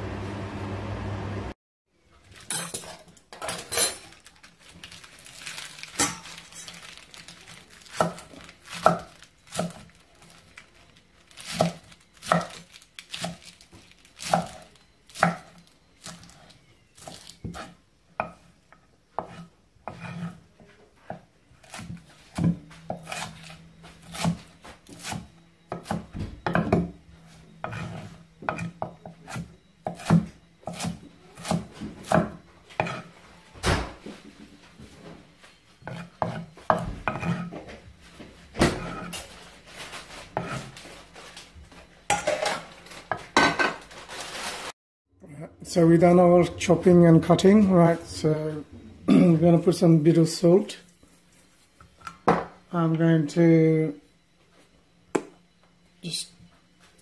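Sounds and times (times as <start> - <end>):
knife chopping on cutting board: 15.2 - 15.5, 19.2 - 20.4, 21.1 - 26.9, 27.6 - 33.1, 35.8 - 37.5.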